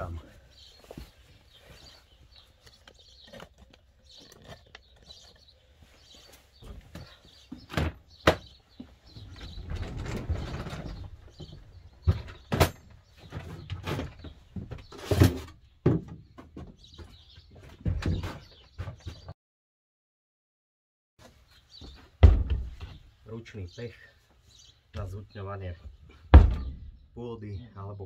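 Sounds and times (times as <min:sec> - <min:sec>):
faint birds chirping: 0:00.0 - 0:19.4, 0:21.2 - 0:28.0
toolbox rolling with rumbling scrape: 0:09.1 - 0:11.5.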